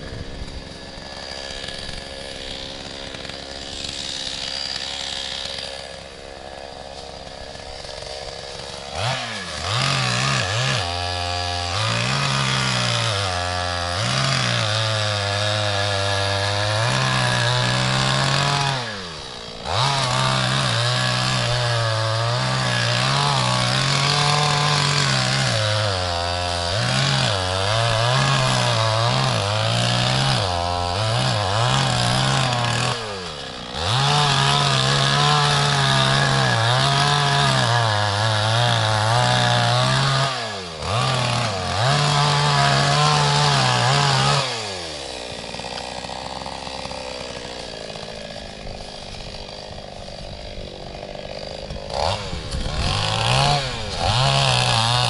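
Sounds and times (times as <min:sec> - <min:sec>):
chainsaw cutting wood: 0:00.0 - 0:55.0.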